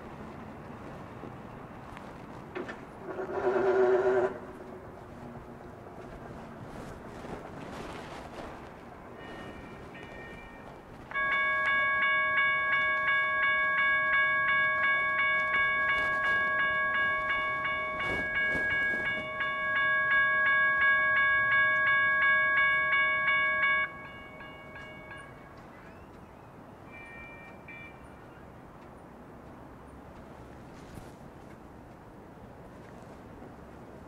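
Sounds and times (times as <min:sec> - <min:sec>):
railroad crossing bell ringing: 0:02.6 - 0:05.6, 0:09.0 - 0:28.9.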